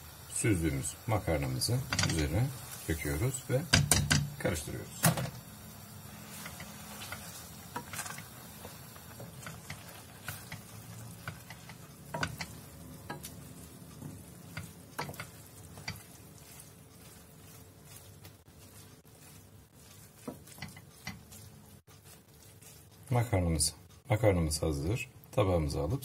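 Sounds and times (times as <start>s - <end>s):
soft sizzle: 0.0s - 26.0s
wooden spoon scraping pan: 6.1s - 23.5s.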